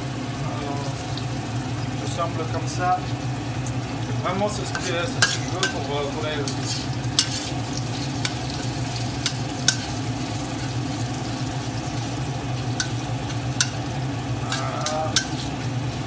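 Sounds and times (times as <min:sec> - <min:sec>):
blower fan hum: 0:00.0 - 0:16.0
oil sizzling in a wok: 0:00.0 - 0:16.0
spatula clicking against pan: 0:09.2 - 0:09.9, 0:14.5 - 0:15.4.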